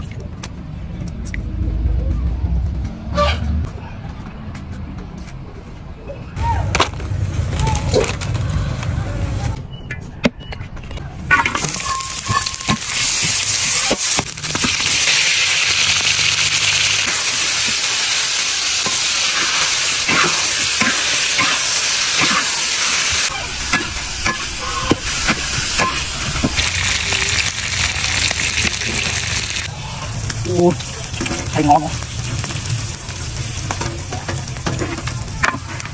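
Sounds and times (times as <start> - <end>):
food sizzling in hot oil: 11.3 - 35.9
metal spatula scraping a wok: 11.4 - 14.8.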